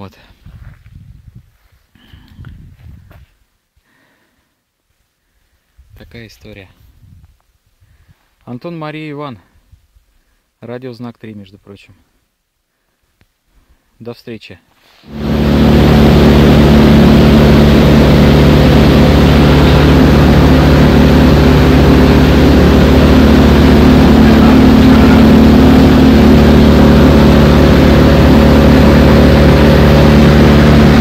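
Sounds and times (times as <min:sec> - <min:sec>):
motorboat engine running: 0:15.1 - 0:31.0
water rushing against hull: 0:15.1 - 0:31.0.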